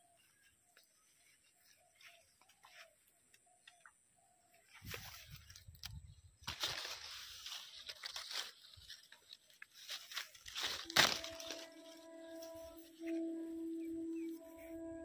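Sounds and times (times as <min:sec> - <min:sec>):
leaves and twigs rustling: 0:00.0 - 0:03.8, 0:04.5 - 0:14.8
background music: 0:10.9 - 0:15.0.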